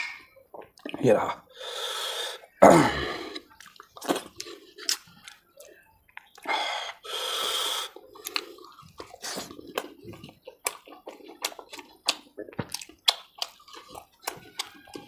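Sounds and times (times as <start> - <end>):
wet chewing: 0.5 - 1.0, 2.4 - 15.0
lip and mouth clicks: 3.3 - 6.5, 7.7 - 15.0
long slurping suck: 6.4 - 8.6.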